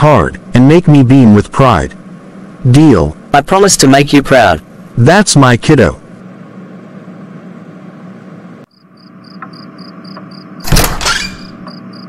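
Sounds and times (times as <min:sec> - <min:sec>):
low background hum: 0:00.0 - 0:12.0
crickets chirping: 0:08.7 - 0:10.7, 0:11.4 - 0:12.0
loud door sound: 0:10.6 - 0:11.8.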